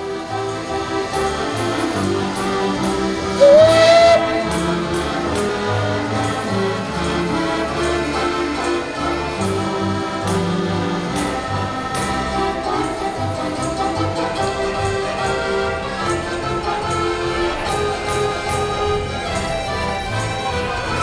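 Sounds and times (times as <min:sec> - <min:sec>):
background music with choir: 0:00.0 - 0:21.0
steam locomotive whistle: 0:03.3 - 0:06.3.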